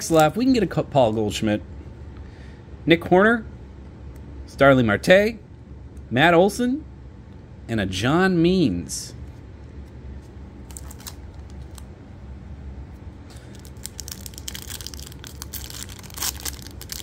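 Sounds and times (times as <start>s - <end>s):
foil wrapper crinkling: 10.6s - 11.9s, 13.3s - 17.0s
foil pack ripping: 10.7s - 11.2s, 13.4s - 17.0s.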